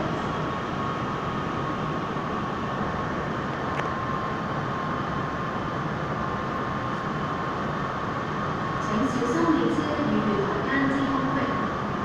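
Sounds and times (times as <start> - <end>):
high whine: 0.0 - 12.0
train rumble: 0.0 - 12.0.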